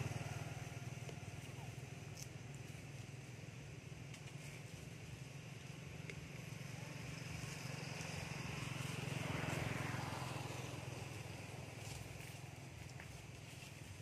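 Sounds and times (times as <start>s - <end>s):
vehicle engine passing: 0.0s - 1.9s, 6.2s - 14.0s.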